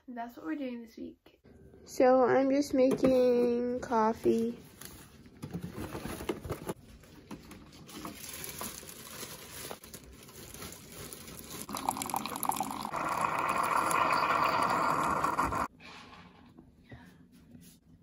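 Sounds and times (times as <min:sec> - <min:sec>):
coffee maker brewing: 0:11.3 - 0:15.7
coffee streaming into mug: 0:11.7 - 0:15.7.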